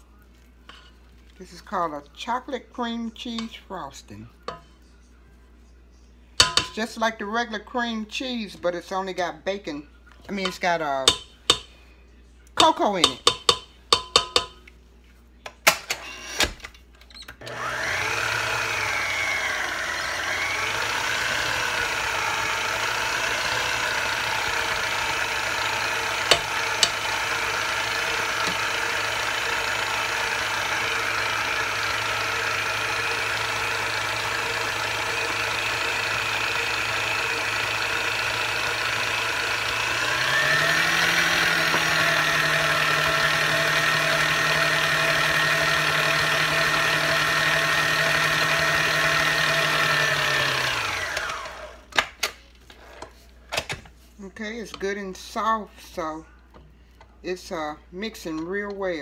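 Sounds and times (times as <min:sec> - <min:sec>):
electric mixer running: 0:17.4 - 0:51.9.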